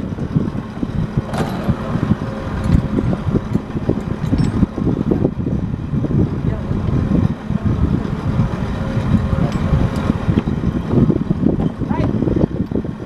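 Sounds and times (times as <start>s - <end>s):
low machinery rumble: 0.0s - 13.0s
wind gusting on microphone: 0.0s - 13.0s.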